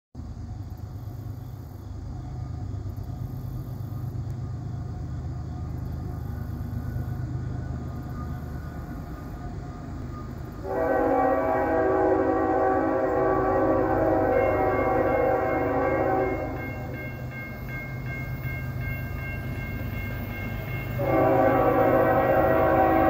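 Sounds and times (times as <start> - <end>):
diesel locomotive rumble: 0.2 - 23.0
locomotive air horn: 10.6 - 17.0, 21.0 - 23.0.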